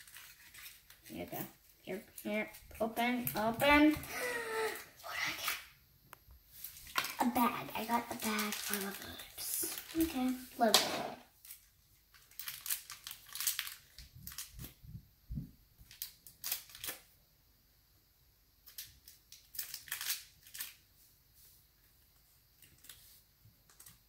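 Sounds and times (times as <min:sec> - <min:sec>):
plastic packaging crinkling and tearing: 0:00.0 - 0:05.6, 0:06.6 - 0:14.8, 0:15.8 - 0:17.1, 0:18.6 - 0:20.9.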